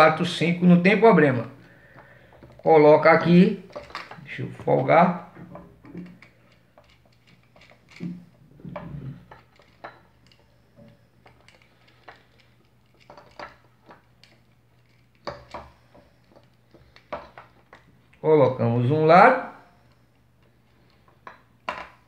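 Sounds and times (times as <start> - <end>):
screwdriver clicking and scraping: 5.5 - 17.9.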